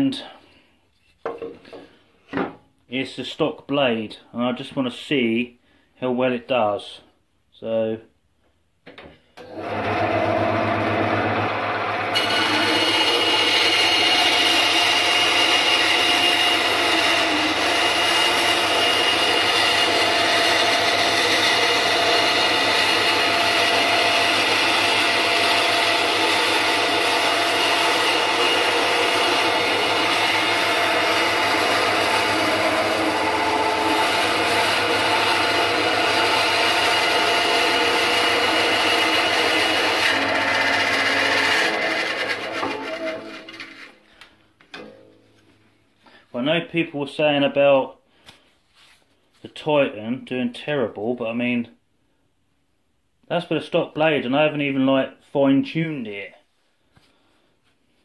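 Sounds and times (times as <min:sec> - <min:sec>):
bandsaw motor hum: 0:09.4 - 0:44.0
saw blade cutting wood: 0:09.6 - 0:44.0.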